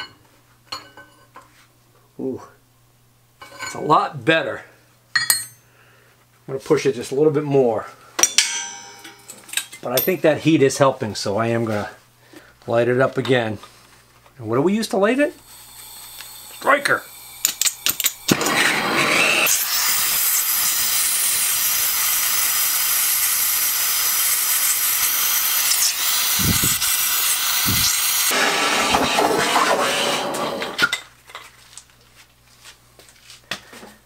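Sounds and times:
gas torch hissing: 15.4s - 30.9s.

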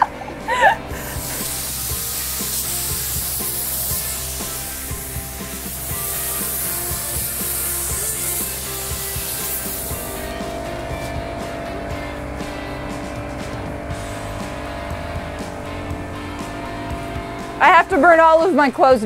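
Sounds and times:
spray gun hissing: 0.8s - 11.2s.

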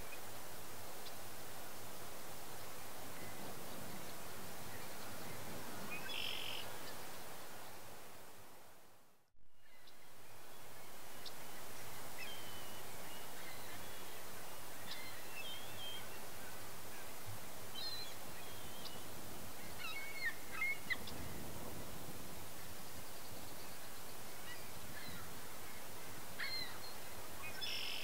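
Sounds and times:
short bird calls: 5.9s - 6.7s, 26.4s - 28.0s.

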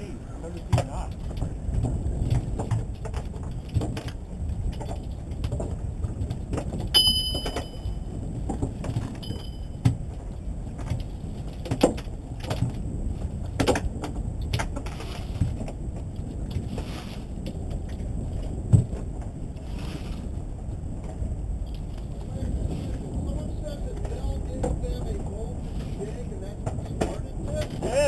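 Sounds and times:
high-pitched tones: 7.0s - 8.0s
low engine rumble: 17.2s - 28.0s.

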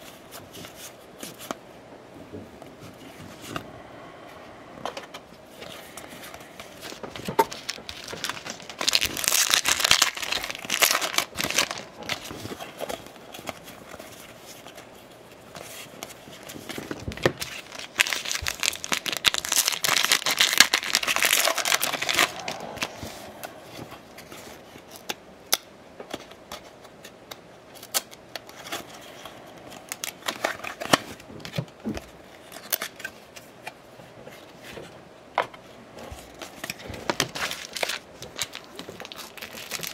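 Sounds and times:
wrappers tearing and crinkling: 6.1s - 14.7s, 16.2s - 23.6s, 36.4s - 39.9s.

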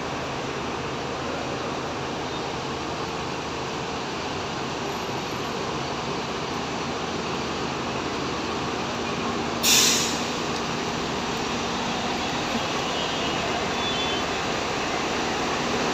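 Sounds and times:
bus engines droning: 0.0s - 15.9s
air brake hiss: 9.6s - 10.5s.

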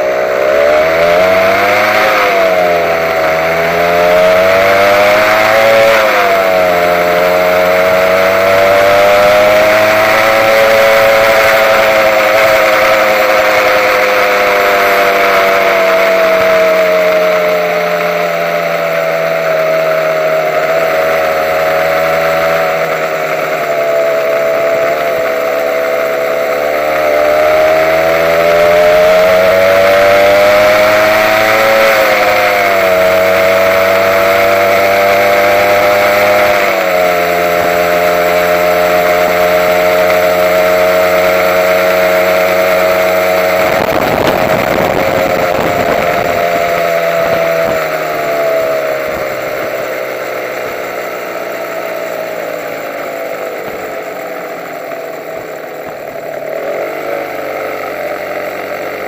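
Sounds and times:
two-stroke motorcycle engine: 0.0s - 59.0s.

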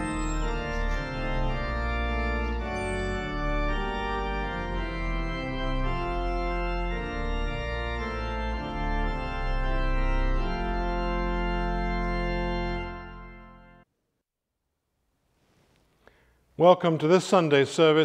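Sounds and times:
pipe organ playing hymn: 0.0s - 13.9s.

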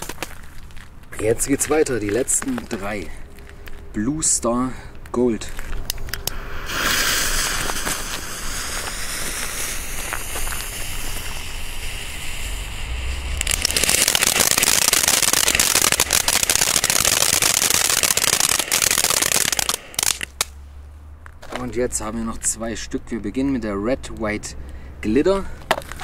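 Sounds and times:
sparks crackling: 0.0s - 4.4s, 5.4s - 20.6s
ground fountain firework hissing: 5.9s - 20.5s.

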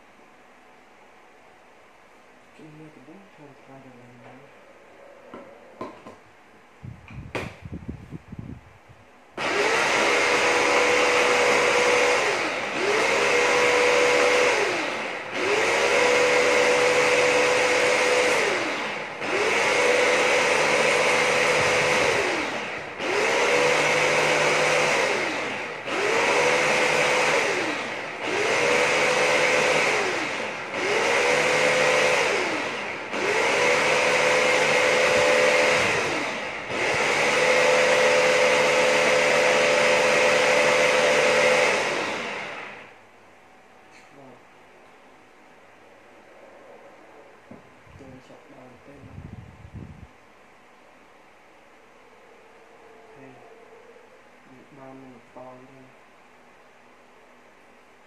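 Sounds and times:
food chopper motor pulsing: 9.4s - 43.0s.

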